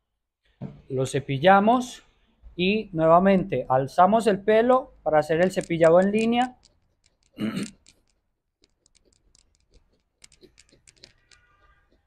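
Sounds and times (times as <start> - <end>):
brush pins clicking through fur: 5.3 - 12.0.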